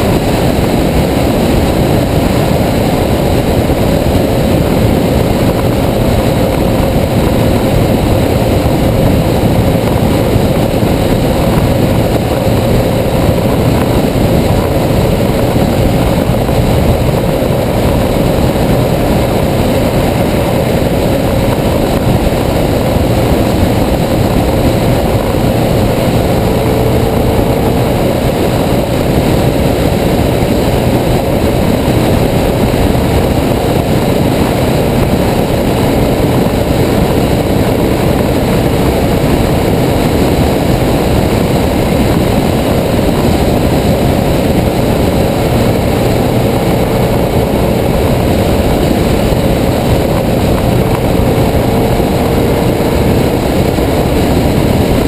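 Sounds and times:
motorcycle engine cruising: 0.0s - 55.0s
wind rushing over microphone: 0.0s - 55.0s.

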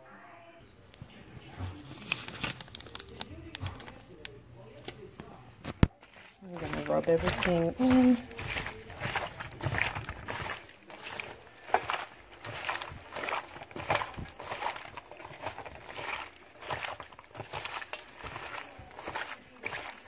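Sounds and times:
wet squelching of raw chicken: 5.8s - 20.0s.

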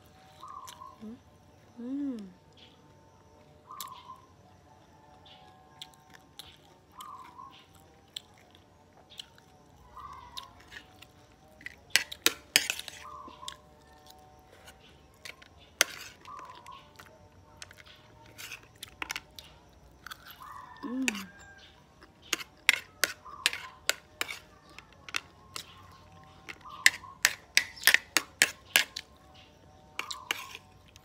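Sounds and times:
chewing and crunching: 0.0s - 1.7s, 2.4s - 31.0s
metal spoon scraping ceramic plate: 11.9s - 13.1s, 14.6s - 16.5s, 17.6s - 19.3s, 21.0s - 25.7s, 26.5s - 29.1s, 30.0s - 30.7s.

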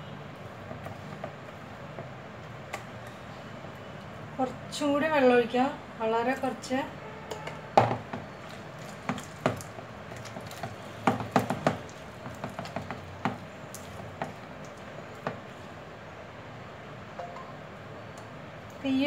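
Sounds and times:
hand squelching wet batter: 8.2s - 15.8s.

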